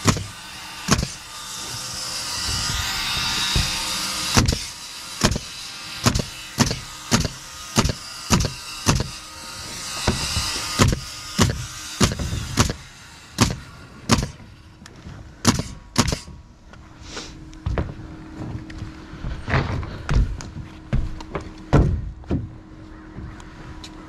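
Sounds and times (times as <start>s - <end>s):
nail gun shots: 0.0s - 1.2s, 3.4s - 9.2s, 10.2s - 14.4s, 15.4s - 16.3s.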